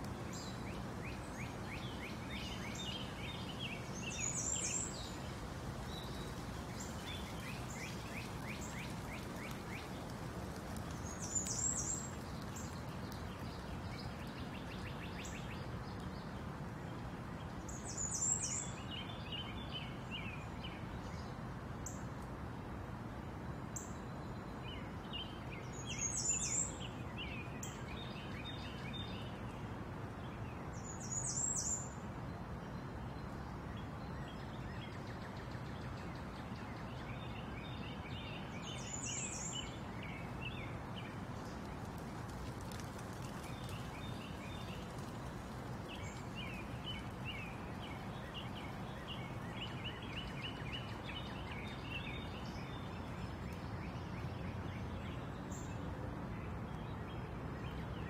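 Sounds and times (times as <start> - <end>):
outdoor ambience hiss: 0.0 - 58.0
small birds chirping: 0.1 - 16.4, 34.2 - 55.8.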